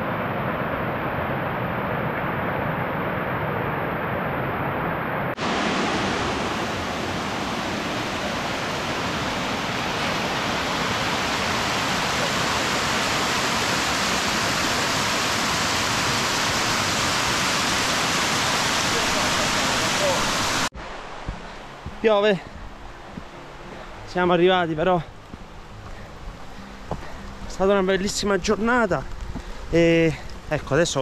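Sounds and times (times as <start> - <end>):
rain falling: 5.4 - 23.5.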